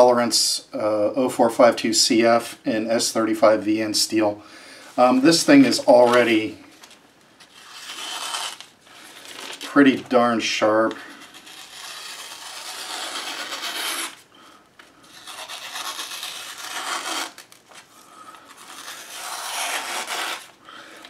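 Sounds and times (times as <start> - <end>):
knife cutting paper: 5.2 - 6.5, 7.4 - 14.2, 15.0 - 20.6.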